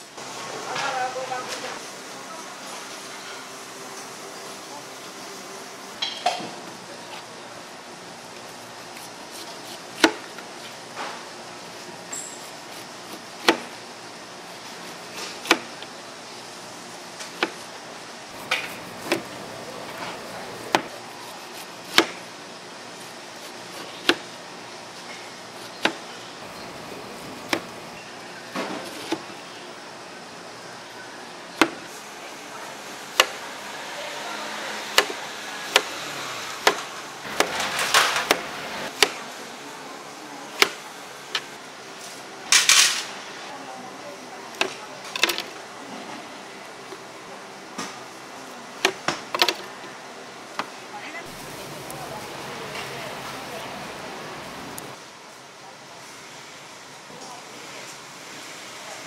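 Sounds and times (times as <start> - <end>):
steady background hum: 0.0 - 59.0
knife chopping on cutting board: 9.0 - 10.3, 12.7 - 13.7, 18.4 - 19.4, 20.7 - 22.2.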